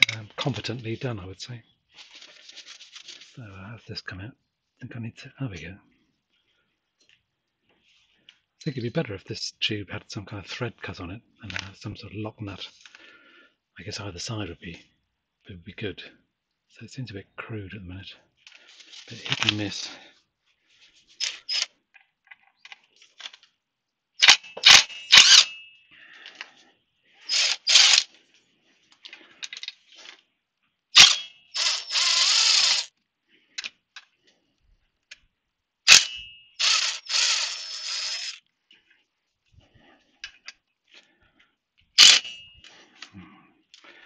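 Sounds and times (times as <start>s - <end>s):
sharp metallic clicks: 24.2s - 25.6s, 27.3s - 28.1s, 31.0s - 32.9s, 35.9s - 38.4s, 42.0s - 42.5s
cordless driver whirring: 25.2s - 25.5s, 27.3s - 28.1s, 31.0s - 32.9s, 35.9s - 38.4s.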